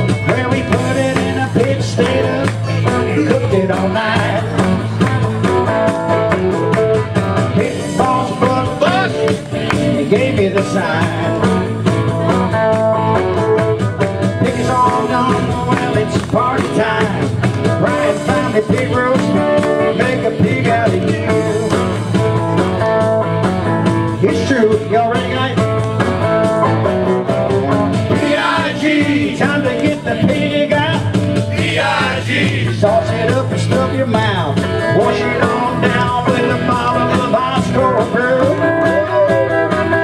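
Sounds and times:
group of people singing: 0:00.0 - 0:05.3, 0:07.5 - 0:11.5, 0:17.8 - 0:21.8, 0:28.1 - 0:38.7
electric guitar: 0:00.0 - 0:40.0.

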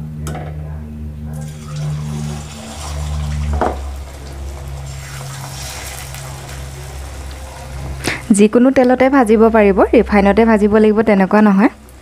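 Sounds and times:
steady low hum: 0:00.0 - 0:12.0
fritters sizzling in oil: 0:01.4 - 0:08.6.

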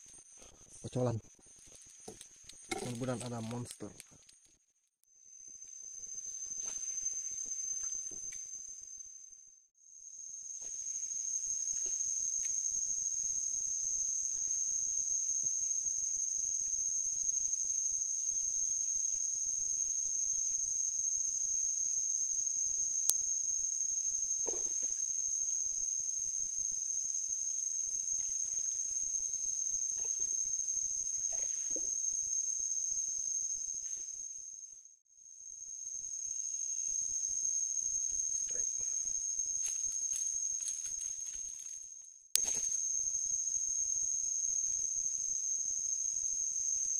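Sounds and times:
insect chorus buzzing: 0:00.0 - 0:04.4, 0:05.1 - 0:46.9.

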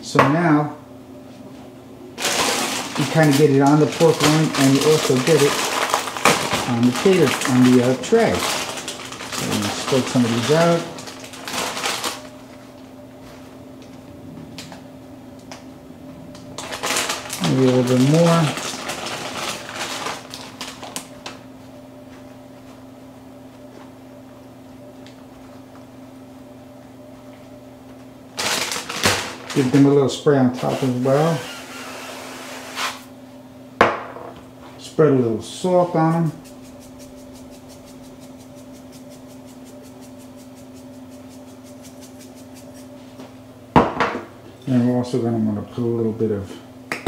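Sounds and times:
low electrical hum: 0:00.0 - 0:47.0
salt shaker ticking: 0:36.0 - 0:42.9.

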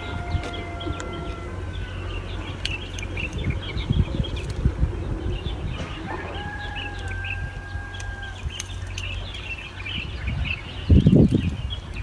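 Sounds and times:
rooster crowing: 0:00.0 - 0:01.7, 0:05.8 - 0:08.5
faint chirps of small birds: 0:00.0 - 0:12.0.

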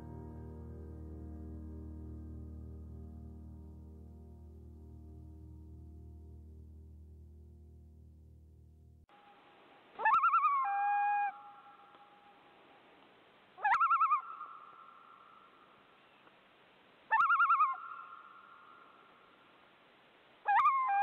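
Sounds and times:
bird call quavering: 0:10.0 - 0:11.9, 0:13.6 - 0:15.4, 0:17.1 - 0:18.9.

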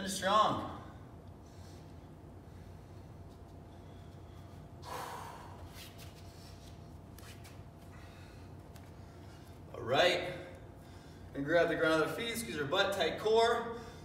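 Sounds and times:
low room hum: 0:00.0 - 0:14.0
man exhaling heavily: 0:04.8 - 0:05.7.

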